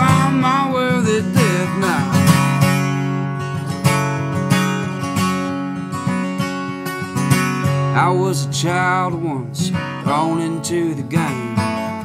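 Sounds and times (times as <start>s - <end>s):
person singing: 0.0s - 2.6s, 7.9s - 12.0s
acoustic guitar strumming: 0.0s - 12.0s.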